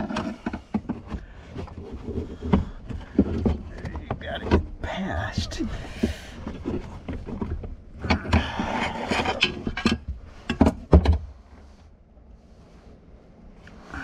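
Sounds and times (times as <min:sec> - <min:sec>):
plastic parts rustling and scraping: 0:00.0 - 0:12.0.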